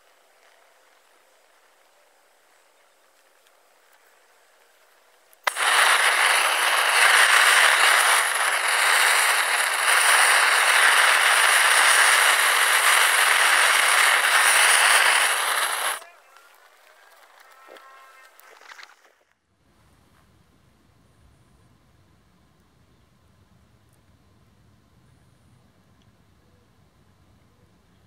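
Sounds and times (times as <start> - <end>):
torch flame rushing hiss: 5.4 - 16.0.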